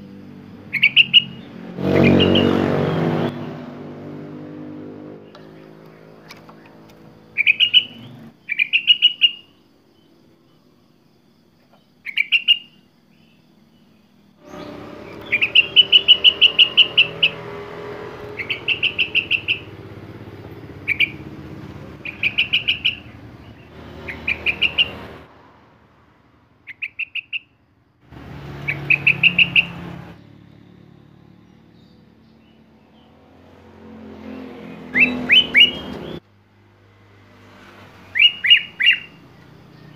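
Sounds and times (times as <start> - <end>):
bird chattering song: 0.7 - 2.6, 5.3 - 10.1, 11.6 - 17.6, 18.2 - 25.2, 26.7 - 27.5, 28.6 - 29.8, 34.8 - 36.2, 38.1 - 39.9.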